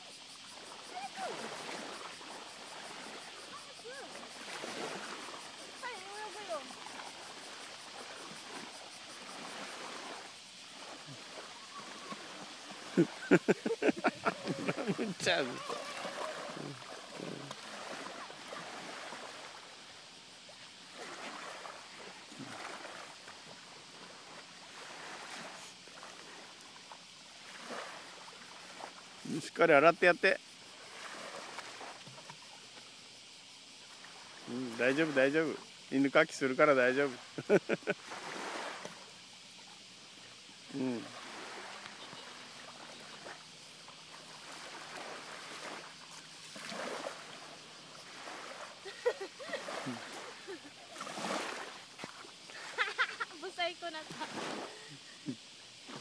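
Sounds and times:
small waves washing ashore: 0:00.0 - 0:56.0
shallow water splashing: 0:00.3 - 0:56.0.

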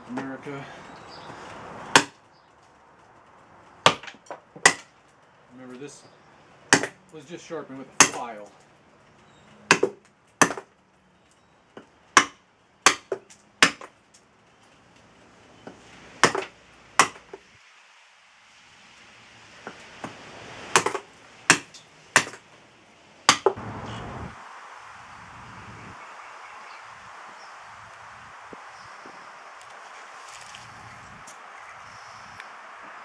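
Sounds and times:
axe chopping wood: 0:01.9 - 0:02.2, 0:03.8 - 0:05.0, 0:06.7 - 0:07.0, 0:08.0 - 0:08.4, 0:09.7 - 0:10.7, 0:11.8 - 0:14.0, 0:15.6 - 0:17.4, 0:19.6 - 0:22.5, 0:23.3 - 0:23.6.

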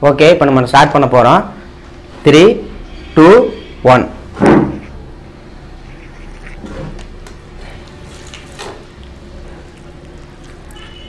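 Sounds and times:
chicken being torn apart: 0:06.0 - 0:11.0.

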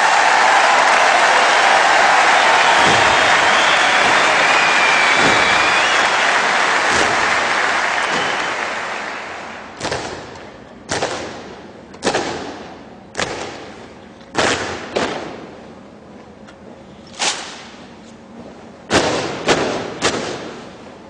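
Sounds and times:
sharp loud hits: 0:01.8 - 0:08.5.

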